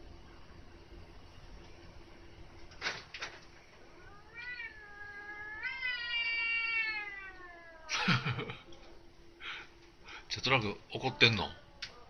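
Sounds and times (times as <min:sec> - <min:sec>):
angry cat yowling: 0:04.0 - 0:08.0.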